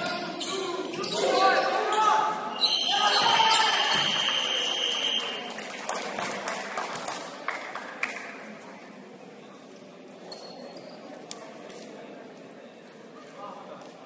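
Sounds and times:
referee whistle blast: 0:02.6 - 0:05.4.

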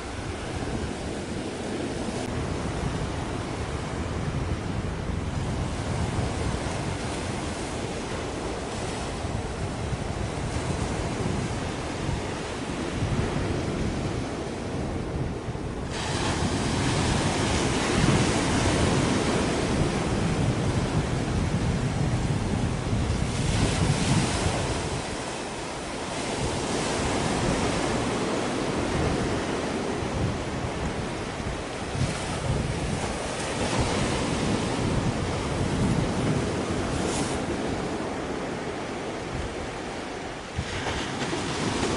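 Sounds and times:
rushing wind and sea: 0:00.0 - 0:41.9
wind buffeting microphone: 0:00.0 - 0:41.9.

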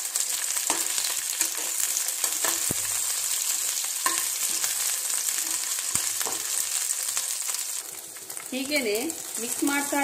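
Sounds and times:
chillies sizzling in oil: 0:00.0 - 0:10.0
spoon knocking against pan: 0:04.0 - 0:04.6.

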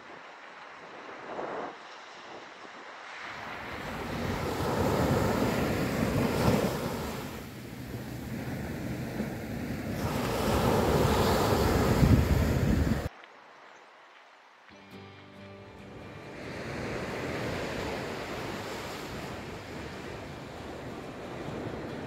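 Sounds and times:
wind buffeting microphone: 0:00.0 - 0:13.1
sea waves surging on shore: 0:00.0 - 0:14.0, 0:16.0 - 0:22.0.

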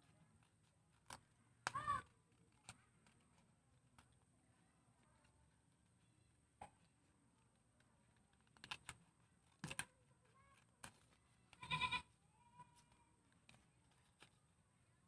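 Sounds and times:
scissors snipping paper: 0:08.3 - 0:11.1.

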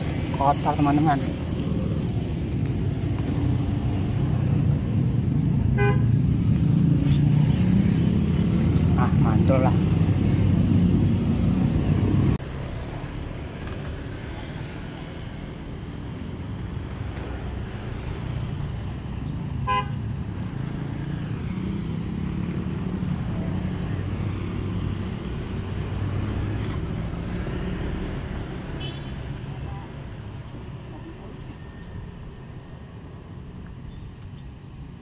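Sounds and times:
road traffic passing: 0:00.0 - 0:35.0.

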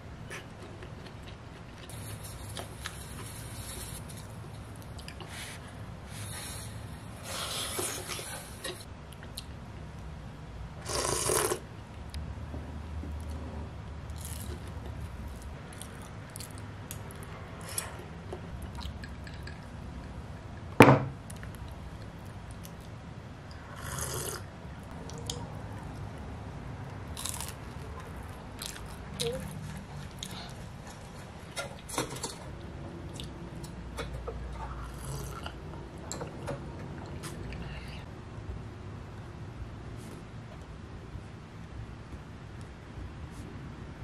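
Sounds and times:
person slurping and chewing: 0:10.8 - 0:11.6, 0:23.8 - 0:24.5, 0:34.8 - 0:35.6.

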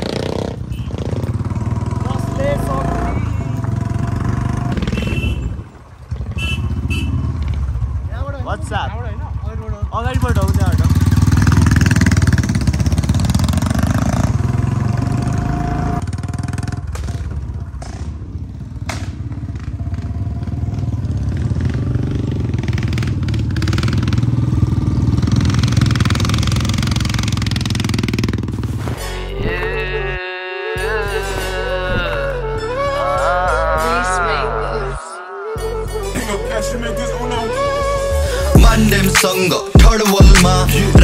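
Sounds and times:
motorcycle engines running: 0:00.0 - 0:28.9.

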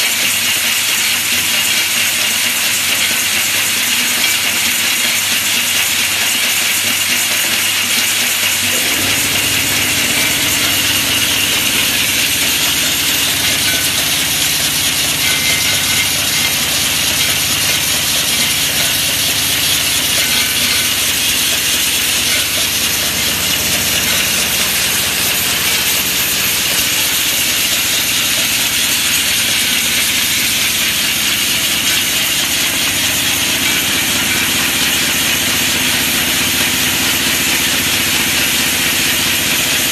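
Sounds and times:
machine hiss and whir: 0:00.0 - 0:39.9
low hum: 0:08.7 - 0:26.6.

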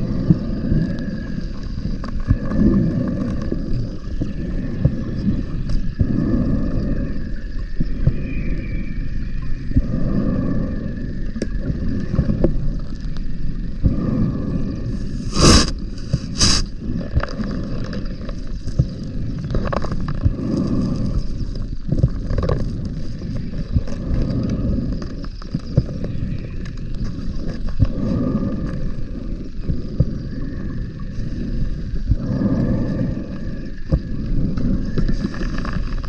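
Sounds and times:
exhaled bubbles rumbling underwater: 0:00.0 - 0:36.0
regulator hissing: 0:15.0 - 0:16.7.

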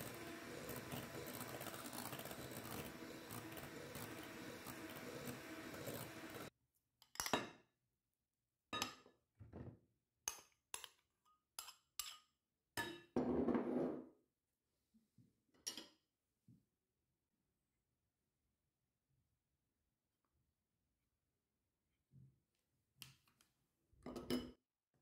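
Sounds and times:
electric hand mixer running: 0:00.0 - 0:06.5.

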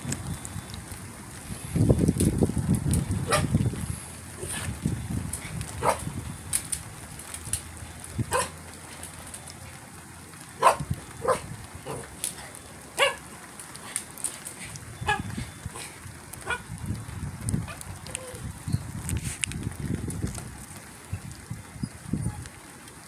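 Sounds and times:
dog barking: 0:03.3 - 0:03.5, 0:05.8 - 0:06.1, 0:08.3 - 0:08.5, 0:10.6 - 0:12.1, 0:13.0 - 0:13.2.

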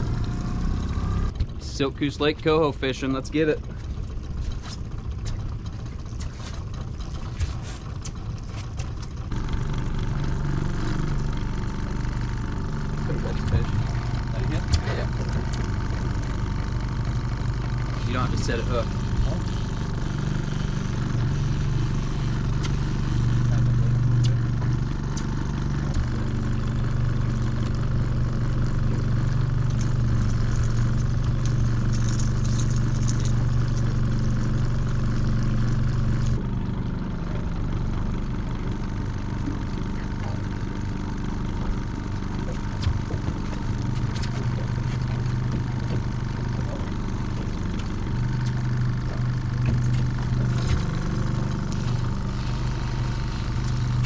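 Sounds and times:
outboard motor droning: 0:00.0 - 0:54.0.

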